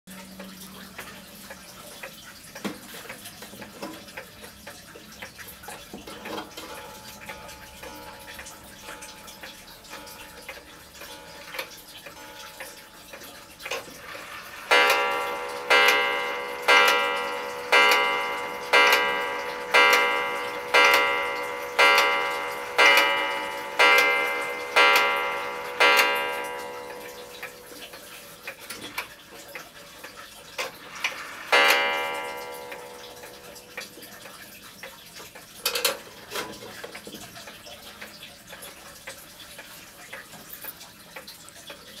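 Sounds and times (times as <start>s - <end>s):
clock ticking: 0.2s - 42.0s
clock striking: 6.0s - 29.1s, 30.6s - 34.4s.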